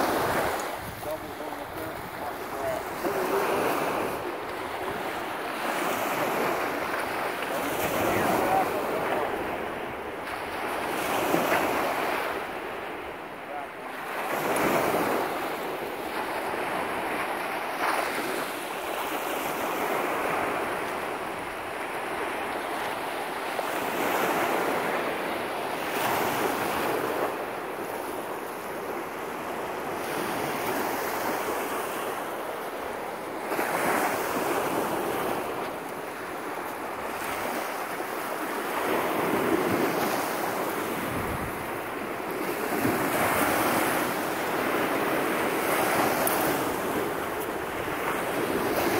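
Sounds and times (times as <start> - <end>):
wind buffeting the microphone: 0.0 - 11.9, 38.8 - 48.9
waves washing up a sandy shore: 0.0 - 48.9.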